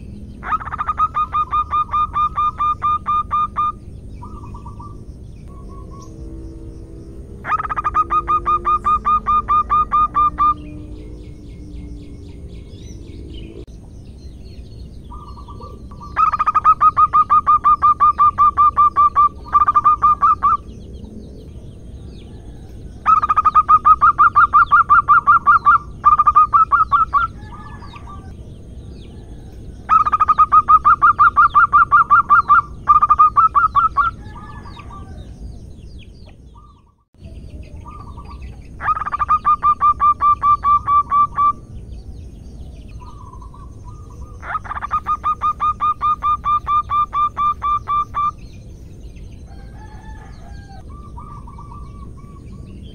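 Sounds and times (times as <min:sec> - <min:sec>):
dove cooing in staccato trains: 0:00.0 - 0:04.9.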